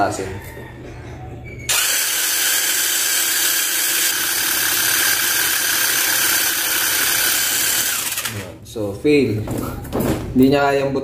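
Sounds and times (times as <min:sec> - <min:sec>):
cordless screwdriver motor running: 0:01.7 - 0:08.5.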